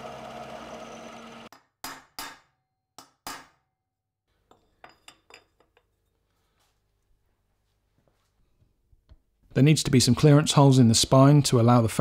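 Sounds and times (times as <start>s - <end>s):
milling machine cutting metal: 0.0s - 1.5s.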